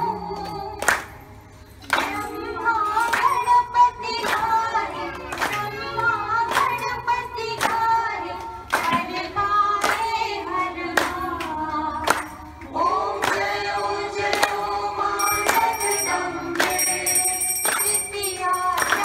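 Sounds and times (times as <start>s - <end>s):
group singing devotional song: 0.0s - 19.0s
people clapping in time: 0.2s - 19.0s
high ringing tone: 15.0s - 19.0s.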